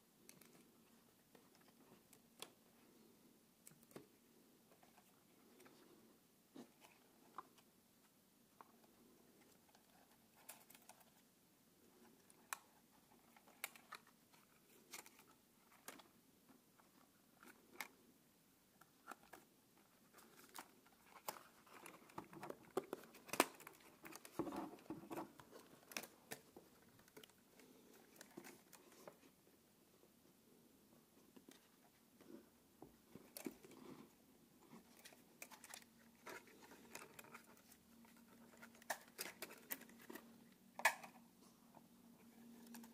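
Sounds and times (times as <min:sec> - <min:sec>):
hands handling plastic drone: 0:06.6 - 0:11.2, 0:11.9 - 0:16.2, 0:18.8 - 0:29.4, 0:31.2 - 0:42.9.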